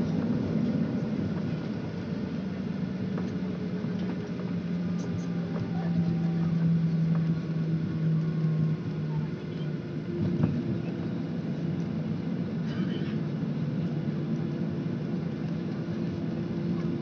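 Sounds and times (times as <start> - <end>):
jet engines heard from cabin: 0.0 - 17.0.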